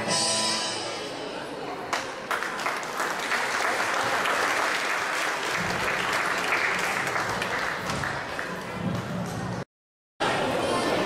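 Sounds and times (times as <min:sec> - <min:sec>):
audience clapping: 0:01.9 - 0:09.2.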